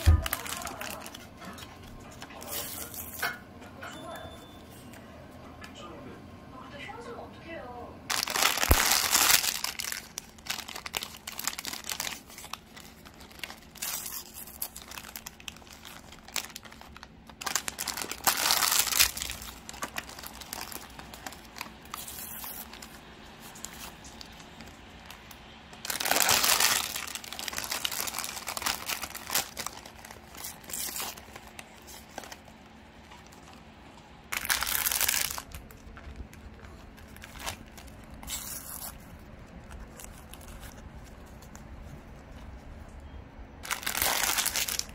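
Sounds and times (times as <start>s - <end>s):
plastic tearing: 0.0s - 1.8s, 8.1s - 33.6s, 34.3s - 41.7s, 43.6s - 44.9s
plastic wrappers crinkling: 0.0s - 3.3s, 8.1s - 43.0s, 43.6s - 44.9s.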